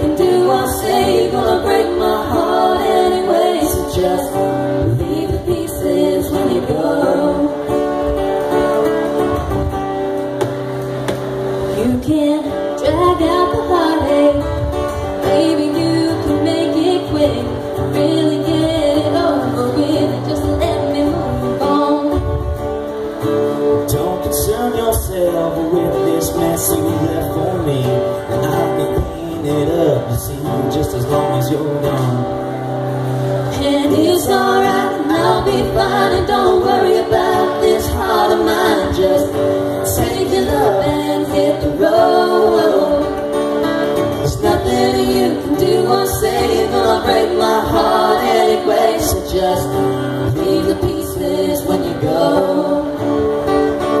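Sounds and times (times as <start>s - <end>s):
woman singing: 0.0s - 7.7s, 11.8s - 22.4s, 33.5s - 43.2s, 44.3s - 53.0s
strummed acoustic guitar: 0.0s - 54.0s.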